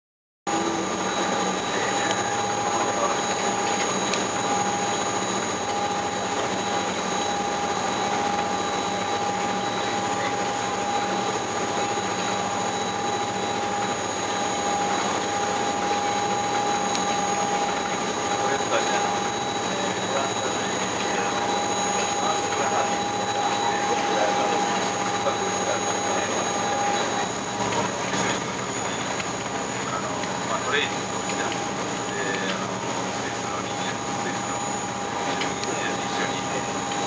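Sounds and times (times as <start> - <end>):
boat engine drone with whining: 0.5 - 37.0.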